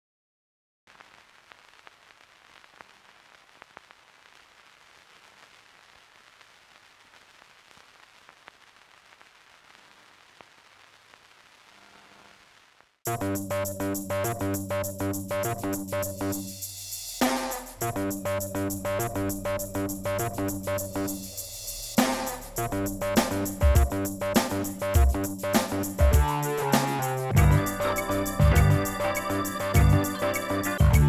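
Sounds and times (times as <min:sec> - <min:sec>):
crackly surface noise: 0:00.9 - 0:13.0
loud music: 0:17.2 - 0:31.0.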